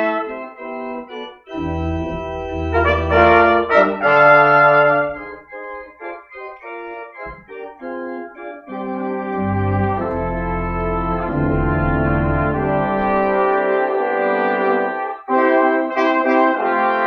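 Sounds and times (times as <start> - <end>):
brass ensemble playing: 0.0 - 0.6, 1.5 - 5.5, 8.8 - 17.0
church organ: 0.0 - 17.0.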